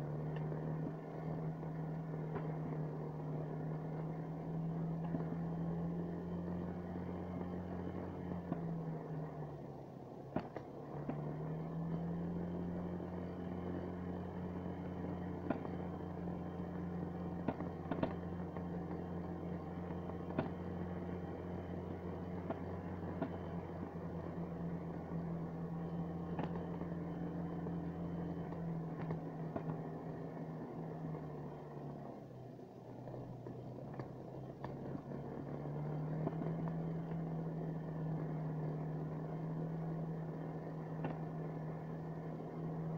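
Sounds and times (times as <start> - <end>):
sharp knocks over bumps: 10.3 - 11.3
snowmobile engine running: 32.8 - 42.9.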